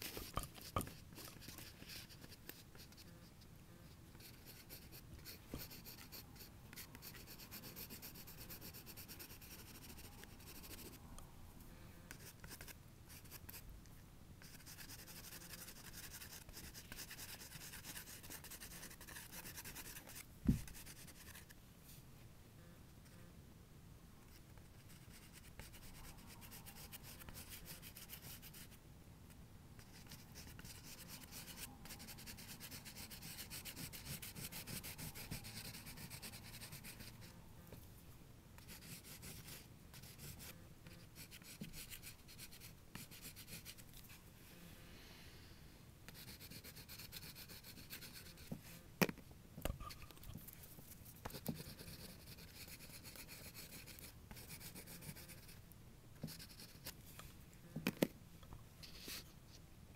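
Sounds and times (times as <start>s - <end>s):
pastel scratching on paper: 0.0s - 11.0s, 12.1s - 13.6s, 14.4s - 21.6s, 24.3s - 28.8s, 29.8s - 37.3s, 38.6s - 44.1s, 46.1s - 48.8s, 50.6s - 55.6s, 56.2s - 57.0s, 58.8s - 59.3s.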